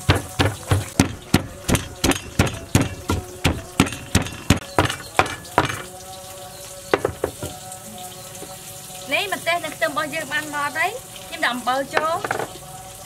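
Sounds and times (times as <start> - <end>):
pestle pounding in mortar: 0.0 - 5.9, 7.0 - 7.6.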